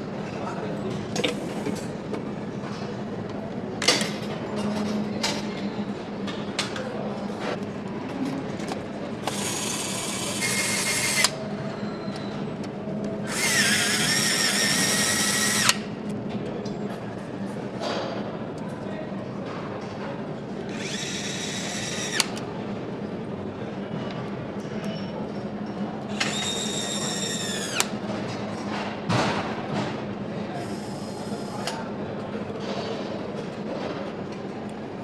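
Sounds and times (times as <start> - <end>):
steady factory hum: 0.0 - 35.0
power screwdriver whining: 13.3 - 15.8, 20.7 - 22.3, 26.2 - 27.9.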